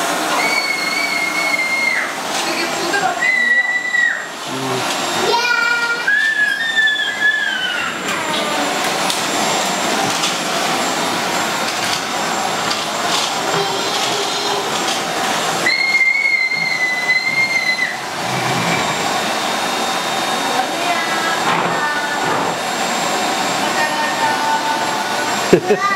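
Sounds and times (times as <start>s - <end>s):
vacuum cleaner suction hiss: 0.0s - 25.9s
high whistle: 0.3s - 2.1s, 15.6s - 18.0s.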